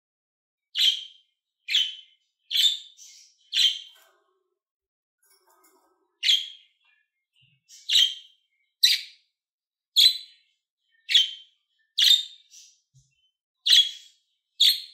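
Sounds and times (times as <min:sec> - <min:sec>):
budgerigar chirping: 0:00.8 - 0:03.9, 0:11.1 - 0:11.4, 0:13.6 - 0:14.9.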